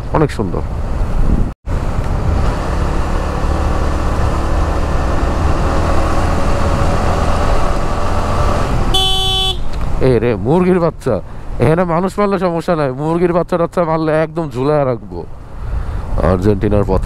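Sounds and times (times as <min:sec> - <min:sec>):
wind noise on microphone: 0:00.7 - 0:09.0.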